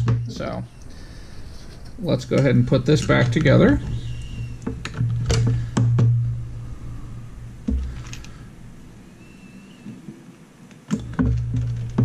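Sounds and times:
low hum: 0:00.0 - 0:12.0
plastic case clicks and knocks: 0:04.7 - 0:06.1, 0:10.9 - 0:12.0.

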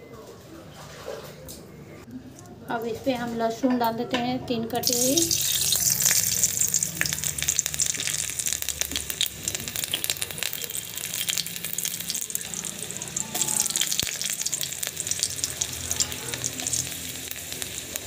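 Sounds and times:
garlic sizzling in hot oil: 0:04.8 - 0:18.0.

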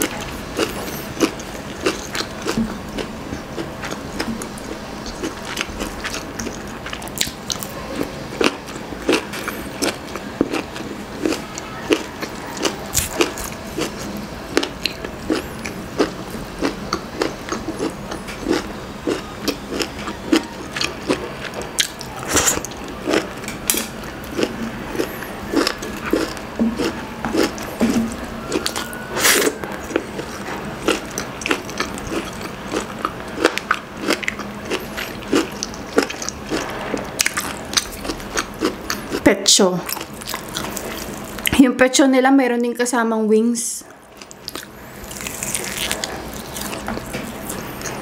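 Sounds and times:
chewing and biting: 0:00.0 - 0:41.5, 0:43.8 - 0:48.0
crunchy bites: 0:08.4 - 0:39.1, 0:44.2 - 0:48.0.

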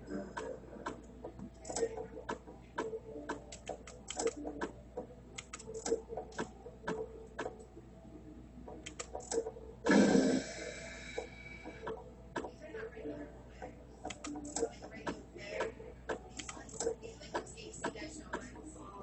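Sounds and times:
slot machine clicks and ticks: 0:00.4 - 0:07.7, 0:08.7 - 0:09.6, 0:14.0 - 0:15.2.

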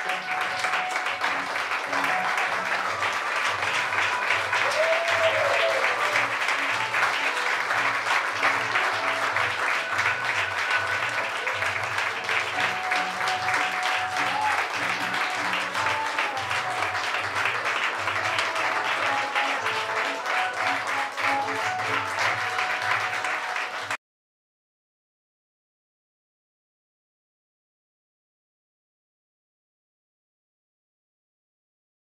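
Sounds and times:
audience applauding: 0:00.0 - 0:24.0.

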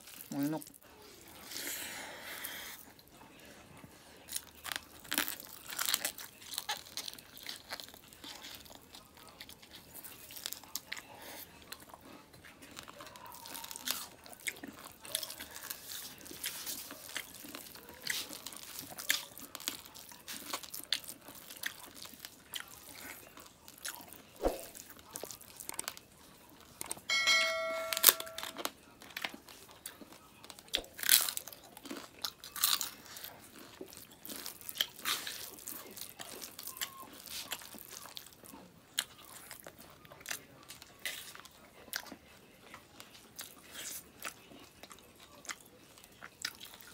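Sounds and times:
chewing and biting food: 0:00.0 - 0:27.1, 0:28.5 - 0:46.9
steady pitched tone: 0:27.1 - 0:28.5.

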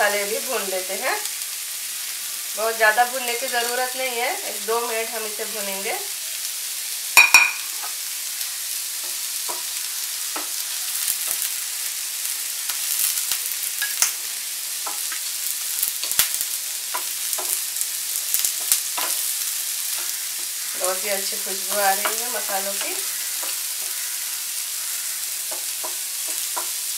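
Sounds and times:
spices and onions sizzling: 0:00.0 - 0:26.9.

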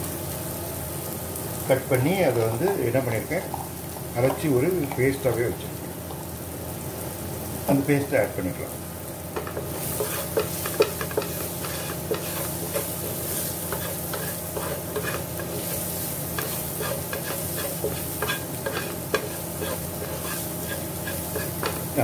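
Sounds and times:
onion sizzling in a frying pan: 0:00.0 - 0:22.0
spatula scraping a pan: 0:09.4 - 0:22.0.

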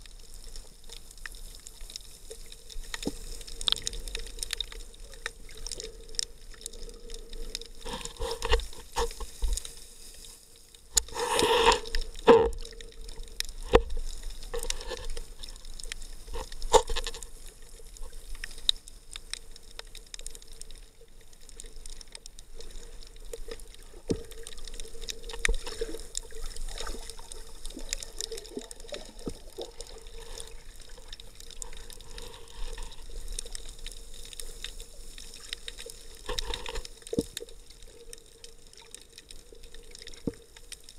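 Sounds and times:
muffled underwater water movement: 0:00.0 - 0:40.9.

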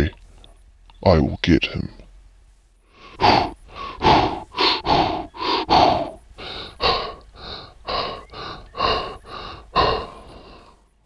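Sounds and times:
man making breathy huffs: 0:03.0 - 0:10.9.

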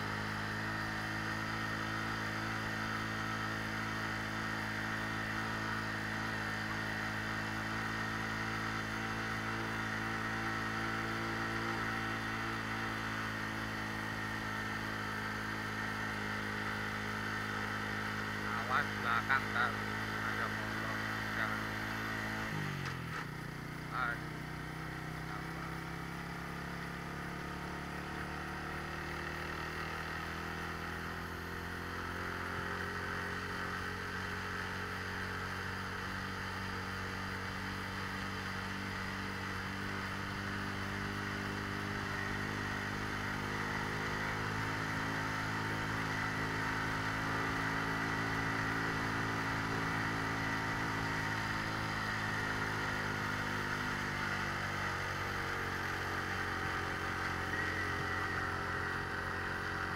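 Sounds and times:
motorcycle engine running: 0:00.0 - 0:59.9
wind and road noise: 0:19.3 - 0:59.9.

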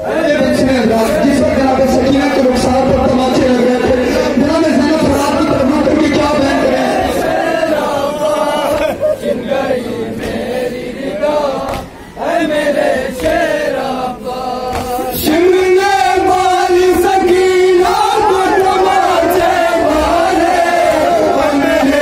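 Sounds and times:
man chanting lament into microphone: 0:00.0 - 0:08.8, 0:13.6 - 0:22.0
group of men chanting: 0:00.0 - 0:22.0
chest-beating slaps: 0:10.2 - 0:10.5, 0:11.6 - 0:12.0, 0:13.2 - 0:13.5, 0:14.7 - 0:15.3.

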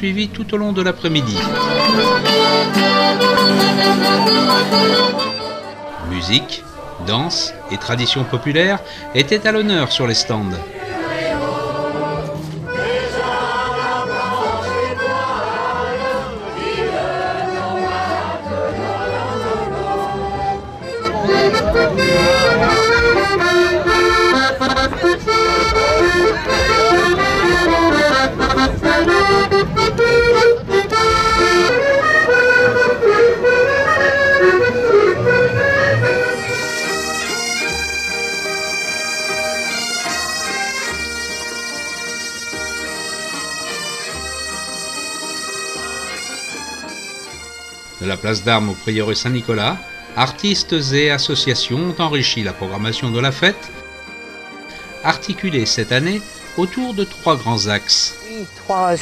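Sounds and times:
folk tune: 0:00.0 - 0:59.0
button accordion tune: 0:00.9 - 0:59.0
bagpipes: 0:01.0 - 0:07.2, 0:08.2 - 0:59.0.

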